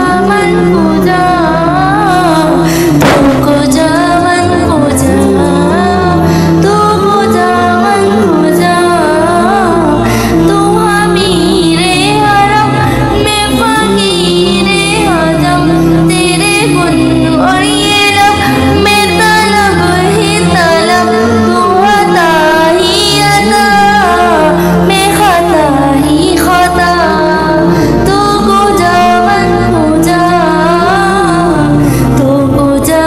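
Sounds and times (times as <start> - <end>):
woman singing devotional song: 0.0 - 33.0
sustained low accompaniment: 1.6 - 7.2.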